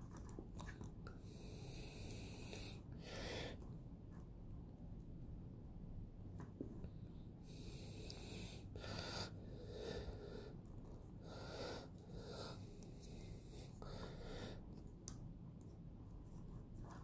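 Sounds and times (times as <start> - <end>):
low room hum: 0.0 - 17.0
person breathing: 1.1 - 3.6, 7.0 - 14.8.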